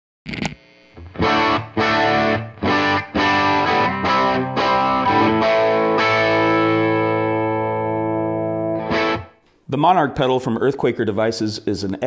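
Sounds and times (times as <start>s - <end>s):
distorted electric guitar chords: 0.3s - 9.5s.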